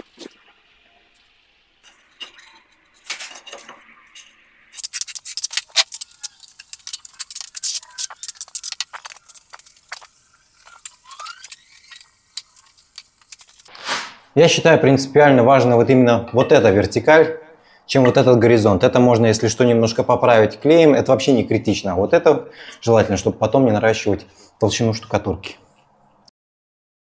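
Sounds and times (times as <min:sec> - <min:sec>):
metallic tool clicks and scrapes: 0:04.8 - 0:14.0
rising squeak: 0:09.9 - 0:12.6.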